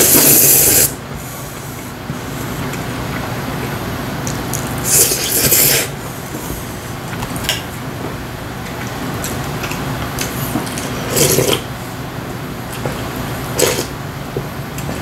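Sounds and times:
man slurping noodles: 0.0 - 1.0, 4.8 - 6.0, 10.9 - 11.6
steady low hum: 0.0 - 15.0.

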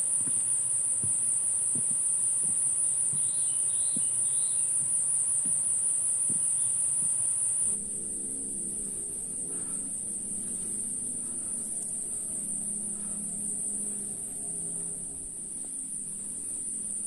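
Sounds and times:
high-pitched insect chorus: 0.0 - 17.0
soft footsteps: 6.3 - 17.0
low steady hum: 7.7 - 17.0.

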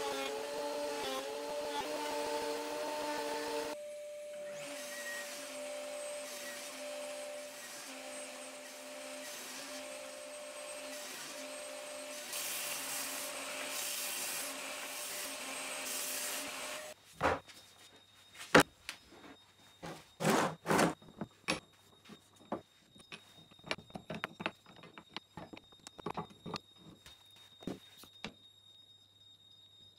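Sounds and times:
saw cutting wood: 0.0 - 3.8, 4.5 - 17.0
table saw running: 0.0 - 3.8
wooden blocks knocking: 23.0 - 26.6.

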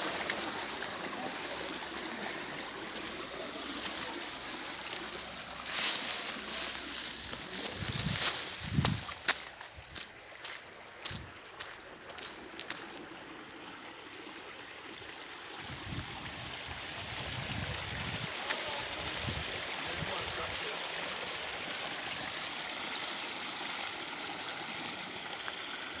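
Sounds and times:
stream water rushing: 0.0 - 26.0.

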